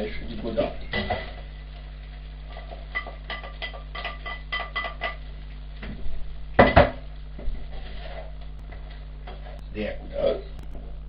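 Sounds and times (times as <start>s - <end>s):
cookware clinking: 2.9s - 5.2s.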